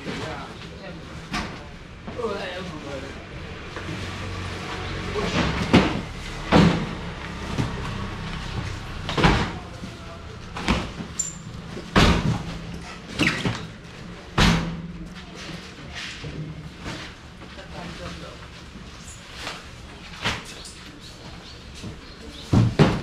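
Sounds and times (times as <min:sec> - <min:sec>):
sharp knocks and bangs: 0:05.3 - 0:09.7, 0:11.8 - 0:12.8.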